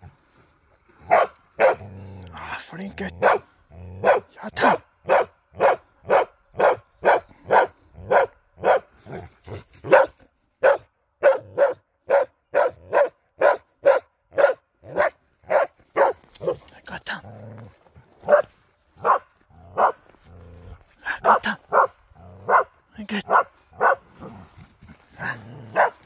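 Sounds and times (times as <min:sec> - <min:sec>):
dog barking: 0:01.1 - 0:01.9, 0:03.2 - 0:16.6, 0:18.2 - 0:20.0, 0:21.2 - 0:24.3, 0:25.7 - 0:26.0.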